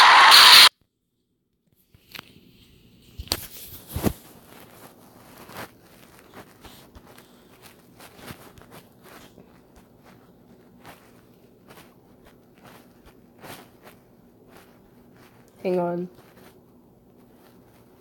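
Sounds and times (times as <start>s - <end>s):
taps and rustles on phone: 1.6s - 15.6s.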